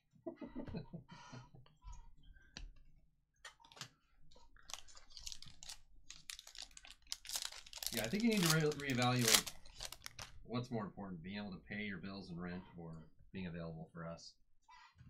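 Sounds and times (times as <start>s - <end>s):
cards clicking and rustling: 4.6s - 10.3s.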